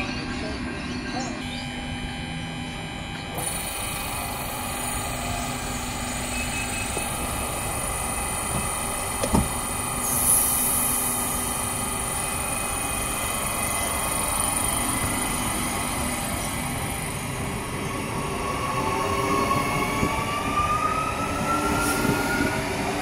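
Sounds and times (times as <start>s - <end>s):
electric railcar hum with high whine: 0.0s - 23.0s.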